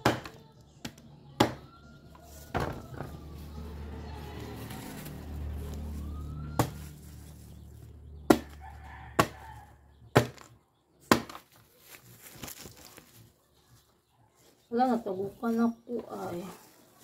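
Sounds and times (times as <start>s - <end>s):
knife chopping fruit: 6.5s - 7.0s, 8.3s - 8.6s, 9.2s - 9.4s, 10.1s - 11.5s.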